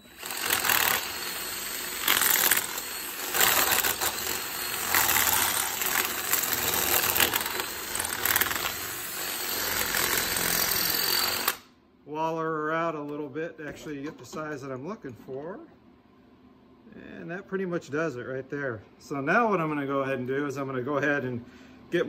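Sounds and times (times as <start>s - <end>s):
cordless drill grinding through metal: 0.0s - 11.7s.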